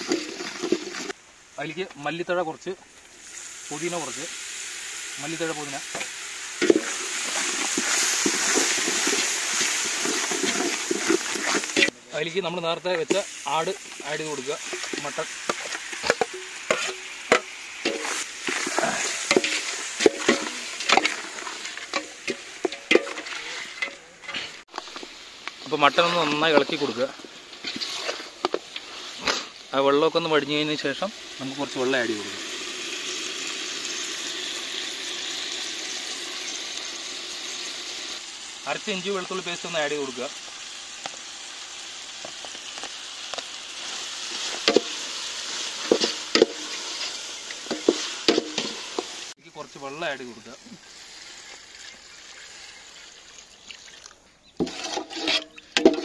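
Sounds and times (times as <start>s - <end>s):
metal spatula scraping a pot: 0.0s - 1.2s, 6.0s - 12.0s, 14.6s - 24.6s, 26.0s - 29.5s, 45.6s - 49.1s, 54.6s - 56.0s
meat sizzling: 0.0s - 56.0s.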